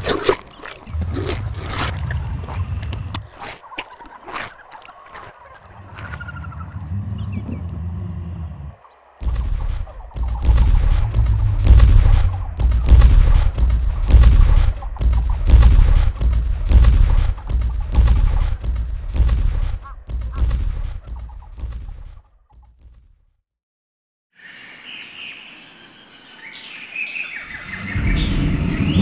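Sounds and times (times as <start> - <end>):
heavy booming footstep thuds: 9.2 - 23.0.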